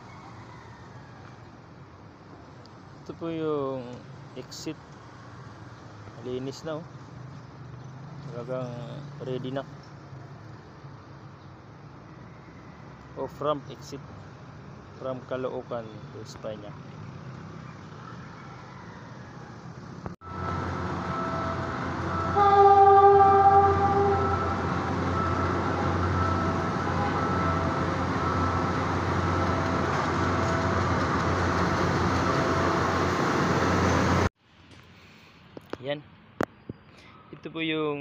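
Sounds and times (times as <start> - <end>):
train rumbling past: 20.2 - 34.3
train horn: 21.1 - 28.4.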